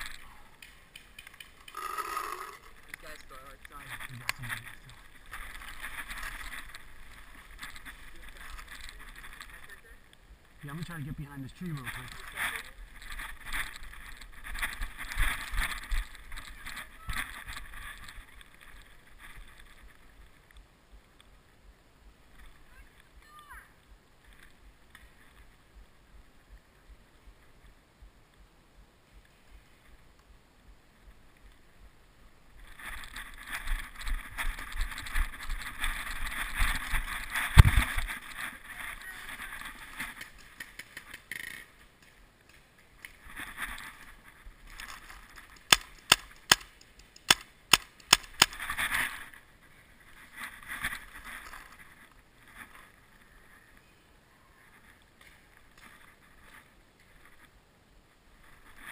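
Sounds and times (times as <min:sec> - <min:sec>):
paintball marker shots: 0:45.7 - 0:48.6.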